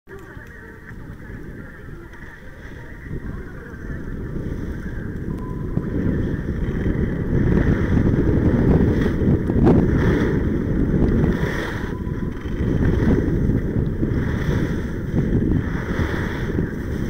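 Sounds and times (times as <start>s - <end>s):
wind rumbling on microphone: 0.1s - 17.0s
skis scraping on snow: 5.9s - 17.0s.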